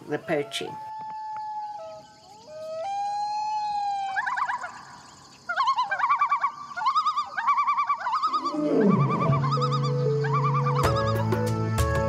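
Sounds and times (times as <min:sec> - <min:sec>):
siren warbling yelp: 0:07.6 - 0:11.4
siren wailing: 0:08.2 - 0:11.3.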